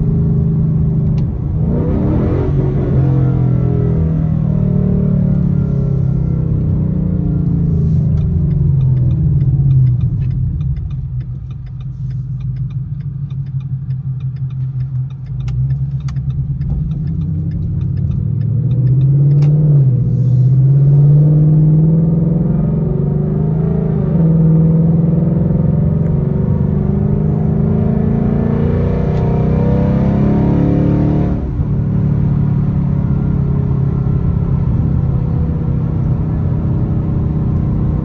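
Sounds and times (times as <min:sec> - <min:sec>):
car engine exhaust rumbling: 0:00.0 - 0:23.1, 0:30.9 - 0:38.0.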